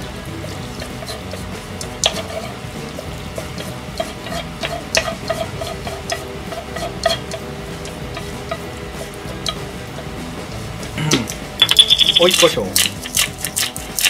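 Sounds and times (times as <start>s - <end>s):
utensil scraping a frying pan: 0.0s - 11.5s
light clicks and taps on pan: 0.7s - 10.1s.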